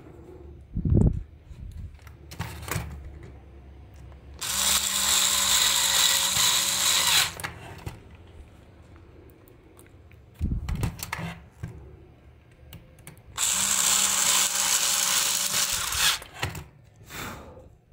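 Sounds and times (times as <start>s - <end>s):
electric screwdriver motor running: 4.4s - 7.4s, 13.4s - 16.3s.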